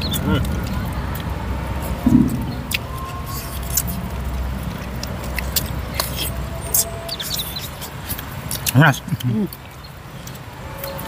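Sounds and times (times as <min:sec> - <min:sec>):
low background rumble: 0:00.0 - 0:06.5
wet chewing and lip-smacking: 0:00.0 - 0:11.0.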